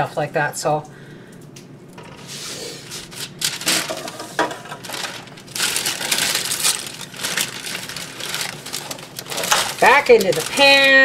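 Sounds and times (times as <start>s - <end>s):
paper rustling and crinkling: 2.8s - 11.0s.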